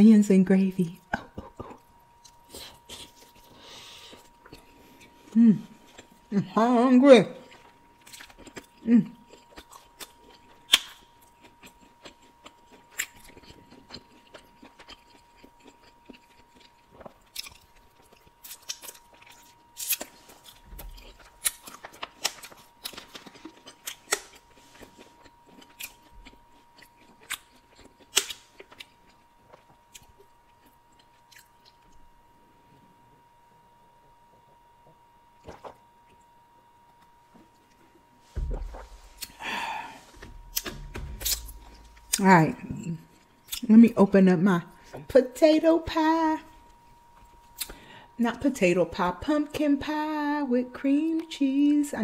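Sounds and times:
chewing with crunches: 0:01.0 - 0:06.3, 0:07.3 - 0:32.2, 0:34.5 - 0:43.7.

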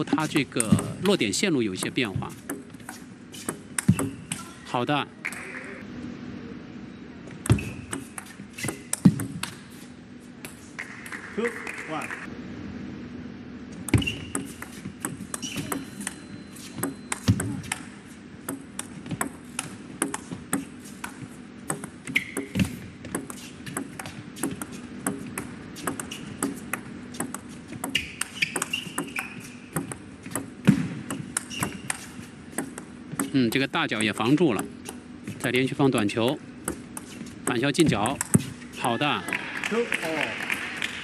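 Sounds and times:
shoe squeaks: 0:01.9 - 0:04.7, 0:07.5 - 0:10.0, 0:13.9 - 0:18.2, 0:20.2 - 0:21.2, 0:22.0 - 0:25.0, 0:25.7 - 0:32.6.

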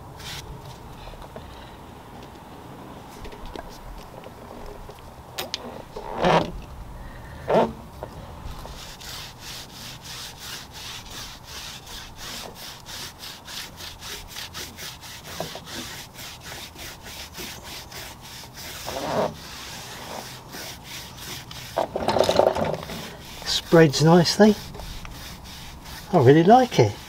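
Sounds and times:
brush scrubbing tyre rubber: 0:08.5 - 0:27.0.

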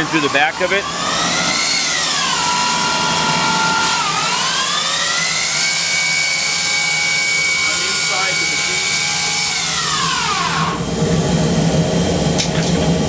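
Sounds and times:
machine hum: 0:00.0 - 0:13.0
spindle whine: 0:00.0 - 0:13.0.

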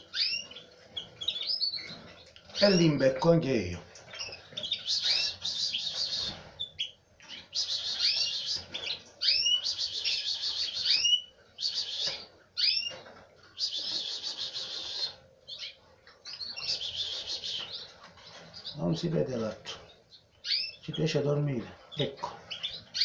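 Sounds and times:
nestling birds cheeping: 0:00.0 - 0:23.0.

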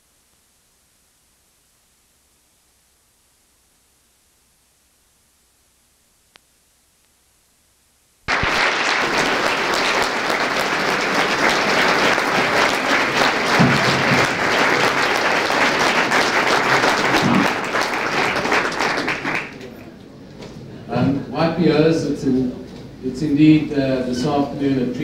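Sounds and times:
audience applauding: 0:08.3 - 0:19.9.

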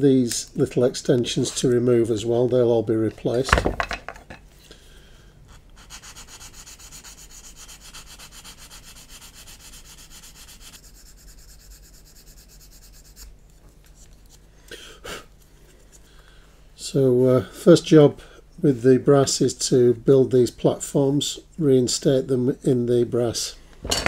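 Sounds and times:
sanding plastic: 0:05.5 - 0:13.4.

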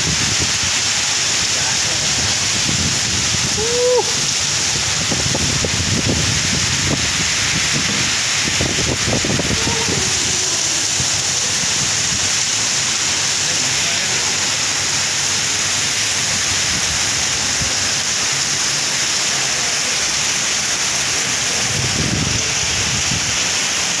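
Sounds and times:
heavy rain pouring: 0:00.0 - 0:24.0.

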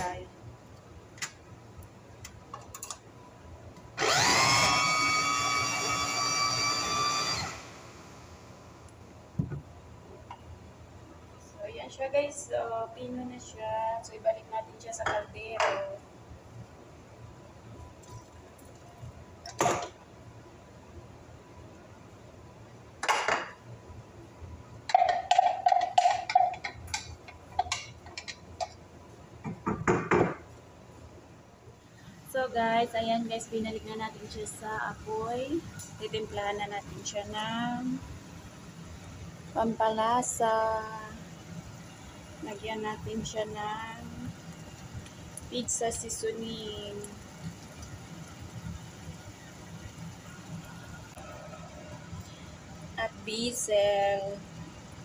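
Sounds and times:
food chopper motor whine: 0:04.0 - 0:08.1.

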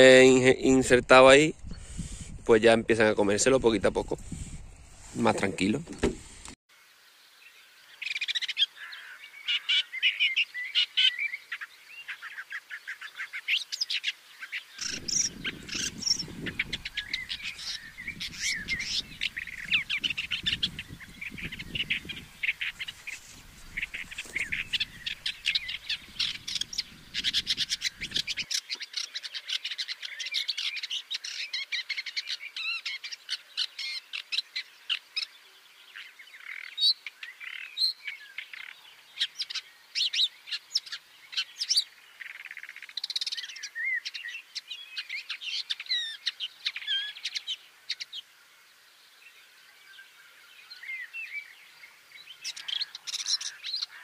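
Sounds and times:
bird singing rapid chirps: 0:08.0 - 0:35.3.

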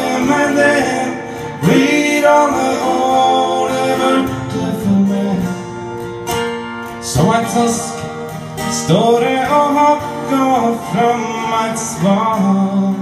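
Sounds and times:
man singing: 0:00.0 - 0:05.9, 0:07.0 - 0:13.0
acoustic guitar: 0:00.0 - 0:13.0.

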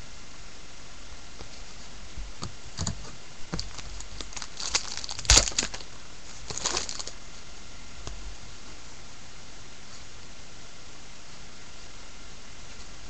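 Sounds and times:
foil wrapper crinkling and tearing: 0:02.8 - 0:07.2.

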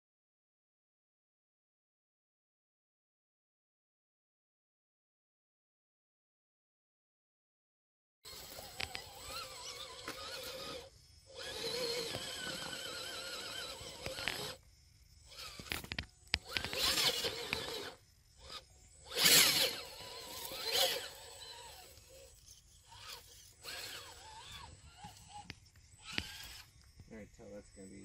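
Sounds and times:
electric motor whine: 0:08.3 - 0:14.6, 0:15.2 - 0:27.1
tires scrabbling over rock: 0:08.3 - 0:14.6, 0:15.3 - 0:26.7.

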